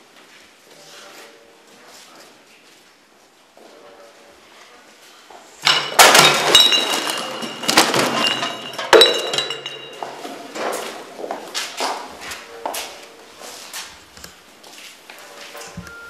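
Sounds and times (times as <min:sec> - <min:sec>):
glass breaking and clinking: 0:05.6 - 0:10.3.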